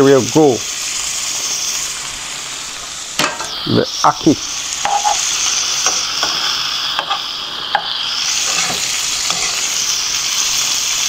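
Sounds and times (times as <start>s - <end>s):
food sizzling in frying pan: 0.0s - 11.0s
spoon scraping and knocking pan: 4.8s - 9.7s.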